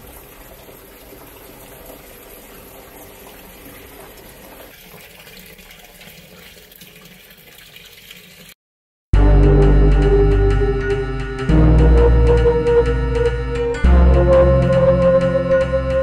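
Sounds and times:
water gushing into washing machine: 0.0 - 8.6.

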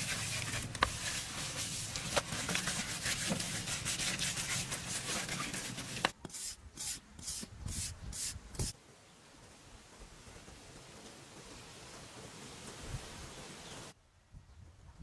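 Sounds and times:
hand rubbing wet plaster: 0.0 - 8.7.

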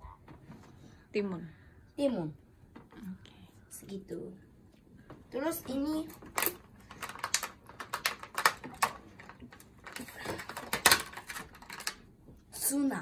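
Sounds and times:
plastic packaging clicking and crackling: 6.1 - 12.1.

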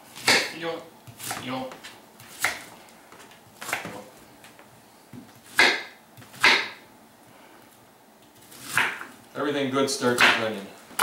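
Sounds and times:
knife chopping on wooden board: 0.2 - 2.7, 5.1 - 6.8, 8.6 - 9.1.

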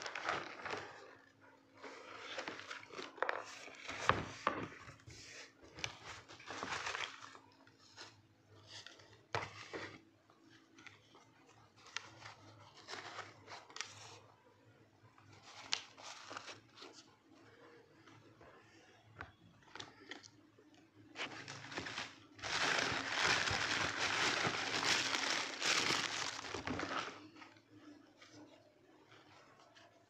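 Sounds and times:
paper wrapping rustling: 0.0 - 1.2, 1.8 - 4.3, 5.2 - 8.8, 15.3 - 17.1, 21.1 - 27.6.

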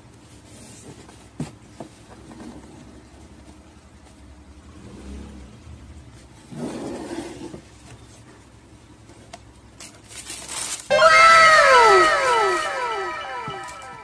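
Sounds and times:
tissue paper rustling: 10.0 - 10.9
downward gliding tones effect: 10.9 - 14.0.

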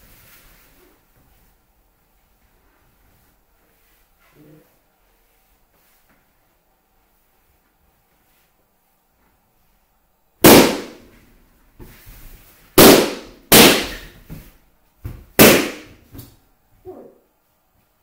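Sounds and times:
balloons bursting: 10.4 - 11.2, 12.7 - 14.5, 15.2 - 16.1.

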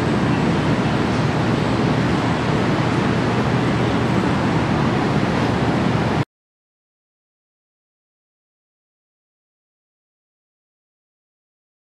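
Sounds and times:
city street noise roar: 0.0 - 6.2.

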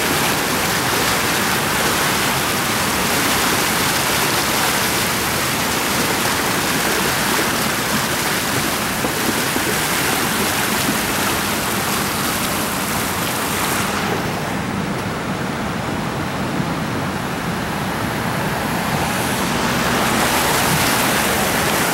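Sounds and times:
creek water rushing: 0.0 - 21.9.

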